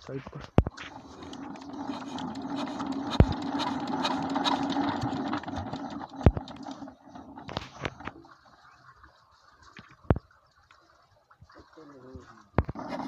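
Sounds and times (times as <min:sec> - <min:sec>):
sharp mechanical clanks: 0:00.7 - 0:06.8
diesel engine turning over: 0:00.8 - 0:07.6.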